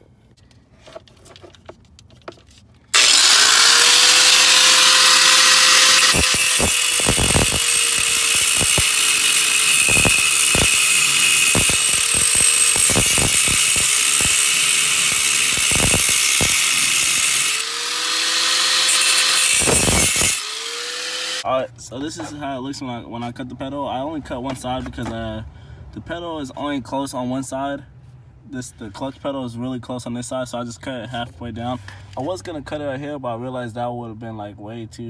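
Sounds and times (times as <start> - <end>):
angle grinder cutting steel: 2.9 - 21.5.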